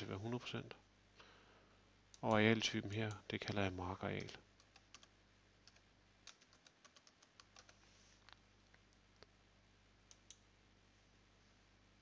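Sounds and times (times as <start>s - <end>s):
keyboard typing: 4.2s - 7.8s, 10.1s - 10.4s.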